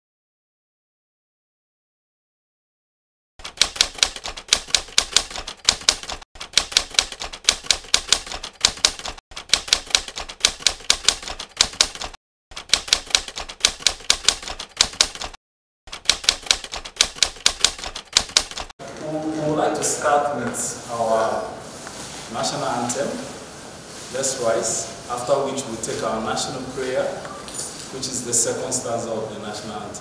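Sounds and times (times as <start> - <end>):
rapid mechanical key clicks: 3.4 - 18.7.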